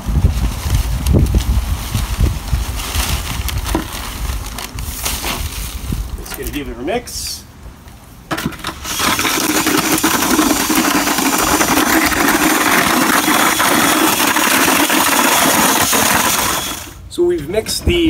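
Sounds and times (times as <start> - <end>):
electric drill mixing mortar: 8.4 - 17.0.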